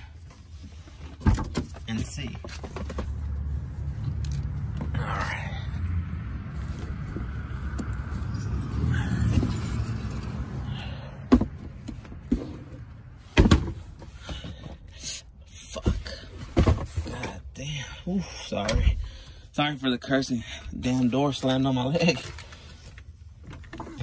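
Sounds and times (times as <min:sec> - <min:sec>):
low rumbling hum: 0:02.6 - 0:15.0.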